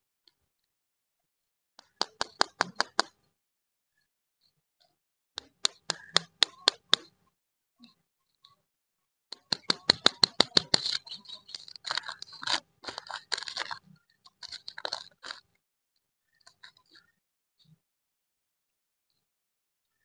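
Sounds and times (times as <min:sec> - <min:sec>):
wrapper crisp clicks: 0:09.4 - 0:15.4
wrapper crackling and crinkling: 0:10.3 - 0:15.4.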